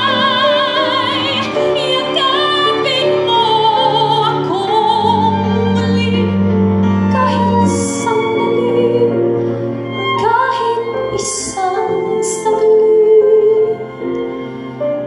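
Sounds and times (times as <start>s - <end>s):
woman singing a ballad: 0.0s - 6.4s, 10.2s - 13.9s
instrumental accompaniment: 0.0s - 15.0s.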